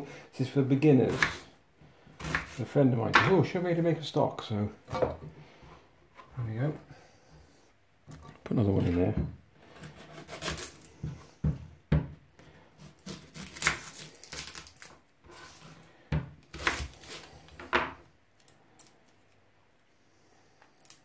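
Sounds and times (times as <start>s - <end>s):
knife knocking on wooden board: 11.4s - 12.2s
onion skin rustling: 12.8s - 15.8s.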